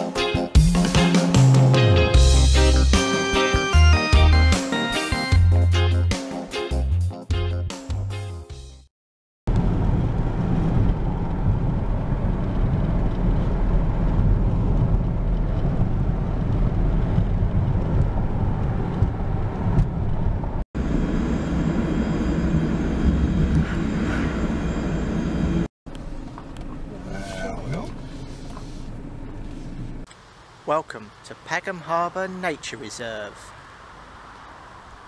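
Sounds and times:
road and engine rumble in car: 0:09.5 - 0:30.7.

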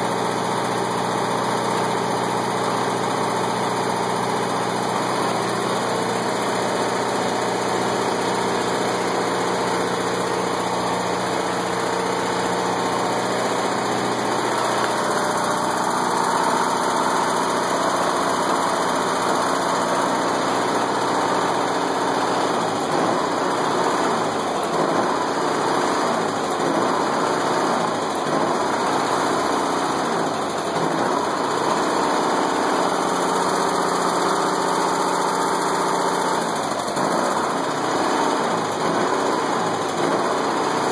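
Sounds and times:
generator engine running: 0:00.0 - 0:40.9.

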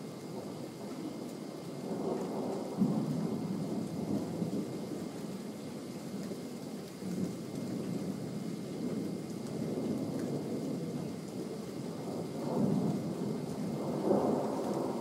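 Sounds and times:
steady rain: 0:00.0 - 0:15.0
thunder rumbling: 0:12.0 - 0:15.0.

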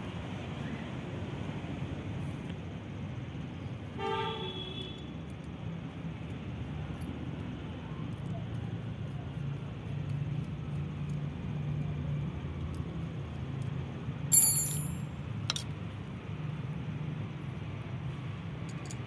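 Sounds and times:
metal clink with high ring: 0:14.3 - 0:15.2, 0:18.7 - 0:19.0.

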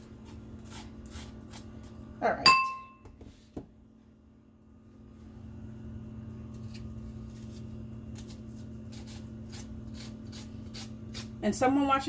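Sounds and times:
low hum: 0:03.8 - 0:12.0
scraping cucumber seeds: 0:06.4 - 0:11.4.

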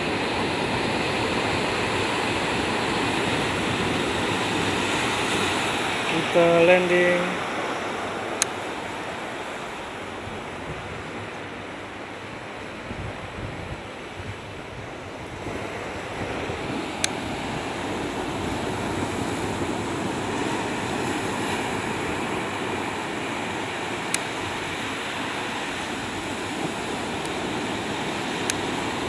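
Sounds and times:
waves breaking on beach: 0:00.0 - 0:29.0
wind on microphone: 0:07.5 - 0:29.0.

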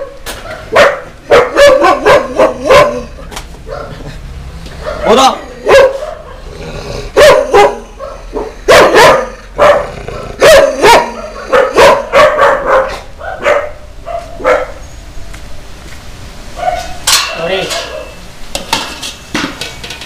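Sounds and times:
dog barking: 0:00.0 - 0:04.1, 0:04.8 - 0:06.5, 0:07.1 - 0:14.8, 0:16.6 - 0:17.0, 0:17.7 - 0:18.2.

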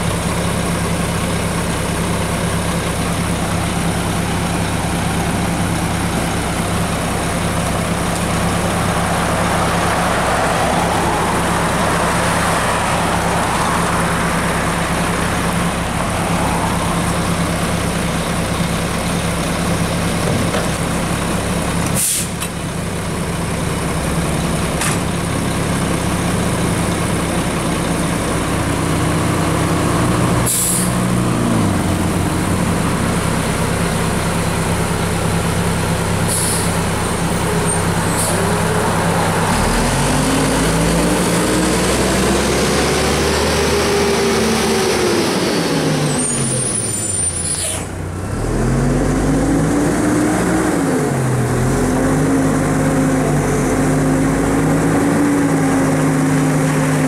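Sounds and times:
garbage truck diesel engine: 0:00.0 - 0:57.0
short sharp air hisses: 0:22.0 - 0:22.4, 0:30.5 - 0:31.0, 0:36.3 - 0:36.8.

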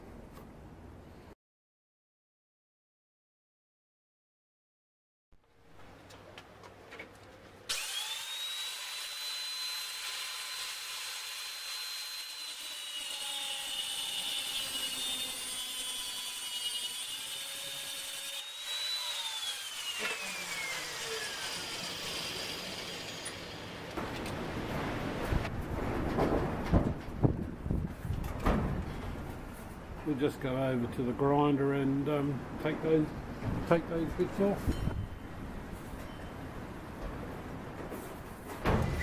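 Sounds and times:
angle grinder whining: 0:07.7 - 0:24.0.

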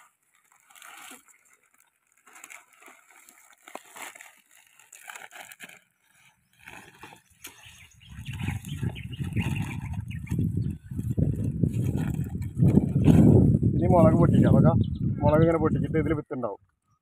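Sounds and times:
foil packet crinkling: 0:00.0 - 0:13.3.

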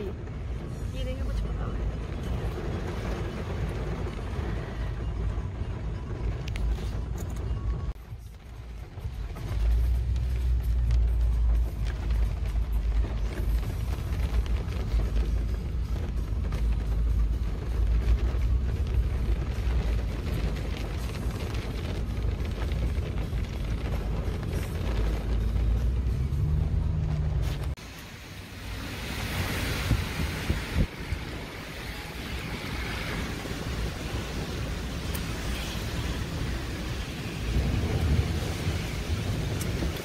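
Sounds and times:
hiss of rain and wet road: 0:00.0 - 0:07.2, 0:07.9 - 0:40.0
car cabin rumble: 0:00.0 - 0:27.9
raindrops spattering on glass: 0:09.2 - 0:26.1.

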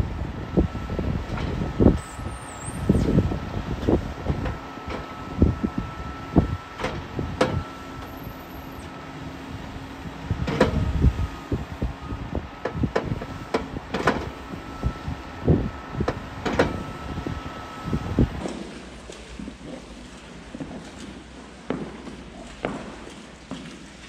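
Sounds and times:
machinery running: 0:00.0 - 0:23.1
faint steady whine: 0:00.0 - 0:24.0
knocks and thuds of load dropping: 0:10.4 - 0:10.9.

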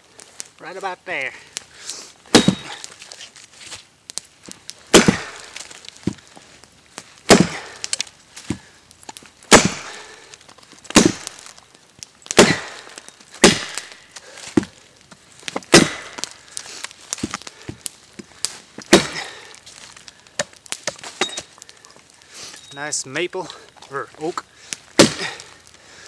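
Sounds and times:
hatchet chopping wood: 0:02.3 - 0:02.9, 0:04.9 - 0:06.2, 0:07.3 - 0:08.7, 0:09.5 - 0:10.1, 0:10.9 - 0:11.5, 0:12.3 - 0:14.8, 0:15.5 - 0:16.3, 0:17.2 - 0:19.4, 0:20.4 - 0:21.5, 0:25.0 - 0:25.5.

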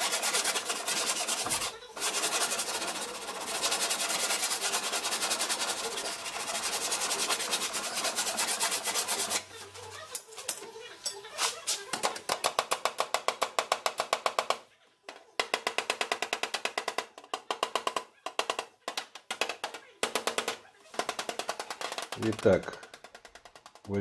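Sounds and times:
hand sanding strokes: 0:00.0 - 0:10.1.

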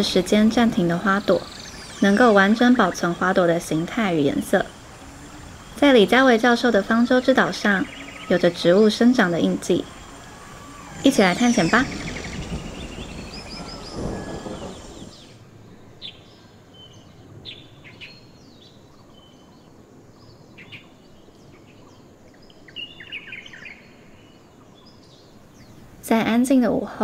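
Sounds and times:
bird chirps: 0:00.0 - 0:15.4
loud full noise: 0:00.0 - 0:15.4
faint steady hiss: 0:00.0 - 0:27.0.

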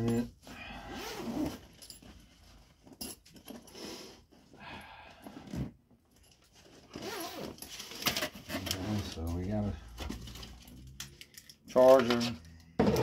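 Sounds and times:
zipper being pulled open: 0:00.9 - 0:01.6, 0:06.9 - 0:08.0.

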